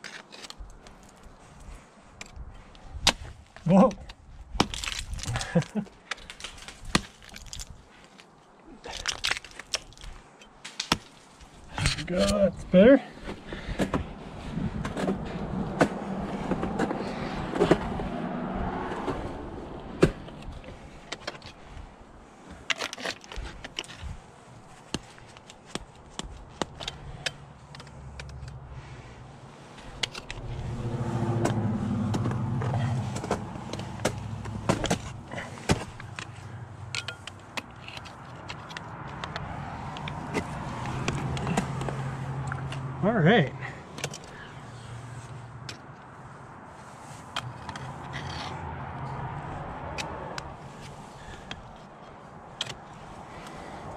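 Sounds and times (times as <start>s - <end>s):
ice axes striking ice: 4.6s - 7.8s, 8.9s - 12.4s
ice chips breaking off: 4.6s - 7.8s, 8.9s - 11.2s.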